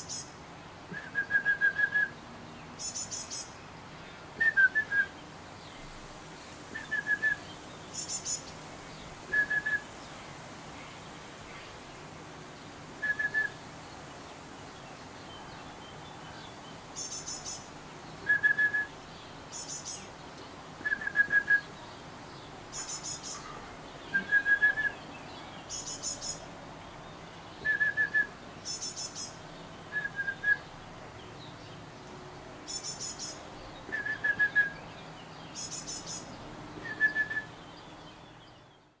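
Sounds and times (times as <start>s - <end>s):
bird whistled phrases: 0.9s - 2.2s, 4.4s - 5.1s, 6.8s - 7.4s, 9.3s - 9.8s, 13.0s - 13.6s, 18.3s - 18.9s, 20.8s - 21.7s, 22.8s - 25.0s, 27.6s - 28.4s, 29.9s - 30.7s, 33.9s - 34.8s, 36.8s - 37.6s.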